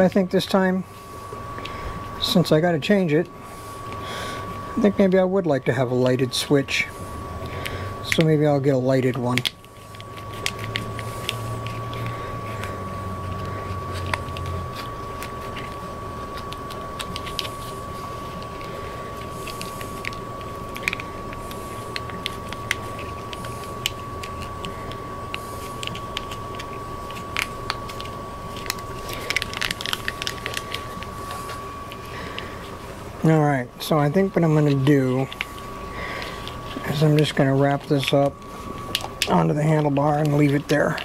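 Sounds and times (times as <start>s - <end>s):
low hum: 0.0s - 41.0s
steady high tone: 0.0s - 41.0s
hands handling cables clicking: 7.6s - 8.4s, 18.4s - 32.5s, 34.7s - 41.0s.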